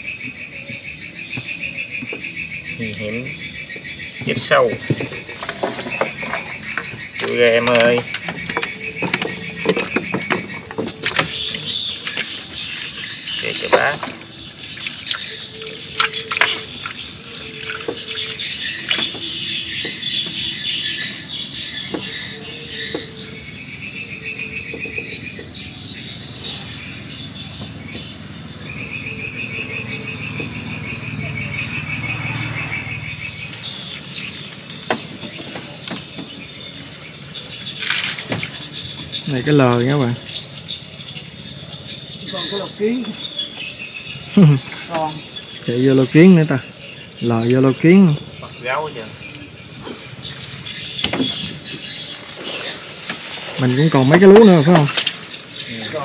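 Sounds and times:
crickets trilling: 0:00.0 - 0:56.0
high insect hum: 0:00.0 - 0:56.0
sharp clicks and knocks: 0:04.2 - 0:12.4.

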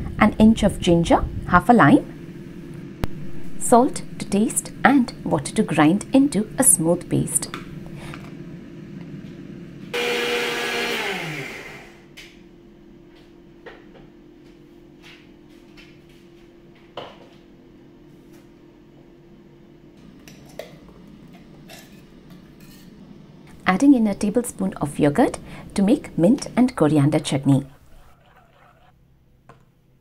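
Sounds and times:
mixer grinder running: 0:09.9 - 0:12.1.

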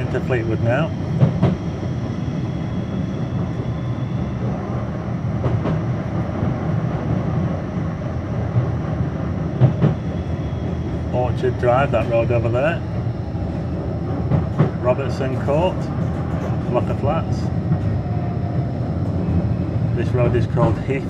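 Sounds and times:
tram rumbling: 0:00.0 - 0:21.0
sharp track clacks: 0:00.2 - 0:01.6, 0:10.7 - 0:18.0.

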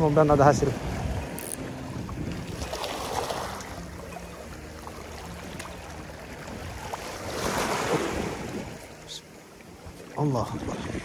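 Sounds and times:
waves lapping against rocks: 0:00.0 - 0:11.0.

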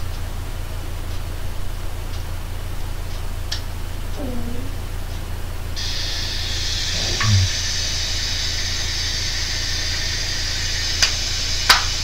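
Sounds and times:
low hum: 0:03.7 - 0:08.7
radio static hiss: 0:05.8 - 0:12.0
sharp clicks: 0:07.0 - 0:07.5.

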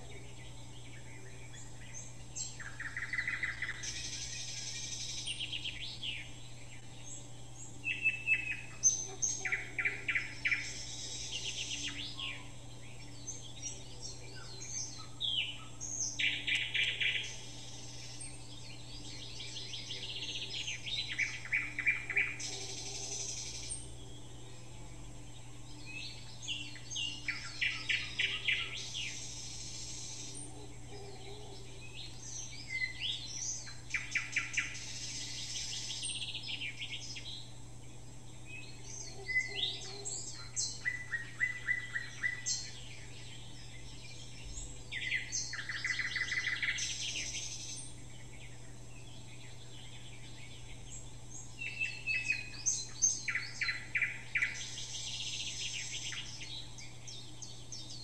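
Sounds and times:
songbirds trilling and chirping: 0:00.0 - 0:58.0.

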